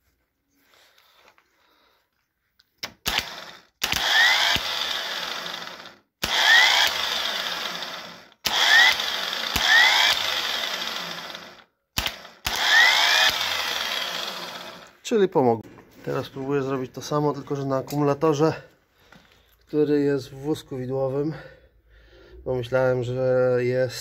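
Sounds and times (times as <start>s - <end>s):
starter motor whining spin: 3.0s - 15.0s.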